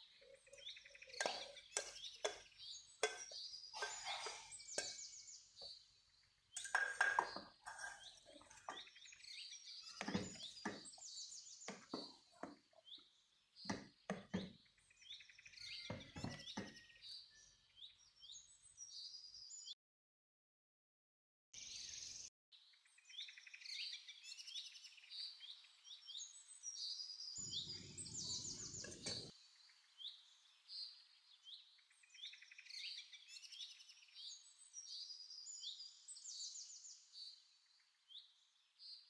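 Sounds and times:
small birds chirping: 0.0 - 19.8, 21.6 - 39.0
wooden spoon scraping metal pot: 6.6 - 8.8.

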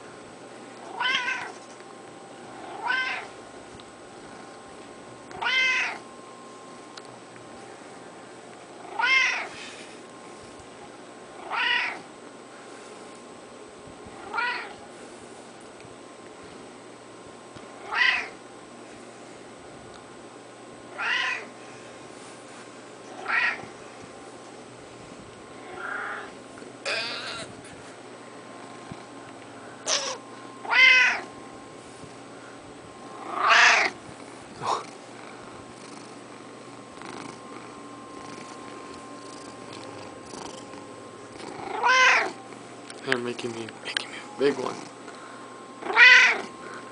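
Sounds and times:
cat meowing: 0.9 - 1.5, 2.7 - 3.3, 5.4 - 6.0, 8.9 - 9.5, 11.4 - 12.0, 14.2 - 14.8, 17.8 - 18.4, 21.0 - 21.5, 23.2 - 23.6, 26.9 - 27.5, 29.9 - 31.3, 33.3 - 34.0, 41.6 - 42.4, 45.8 - 46.5.

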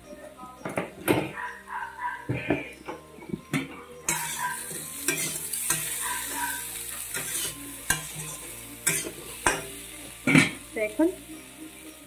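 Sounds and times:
frying sizzle: 2.2 - 12.0
spatula scraping pan: 4.1 - 10.6.

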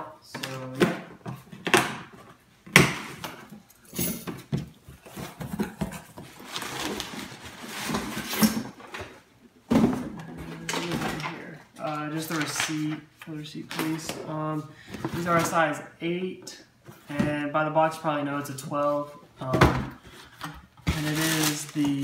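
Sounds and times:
cardboard rustling and scraping: 4.3 - 9.2, 20.2 - 22.0.

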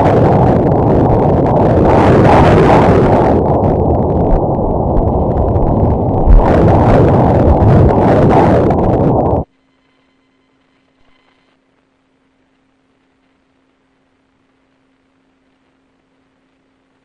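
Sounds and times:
ultrasound doppler whooshing: 1.5 - 9.4.

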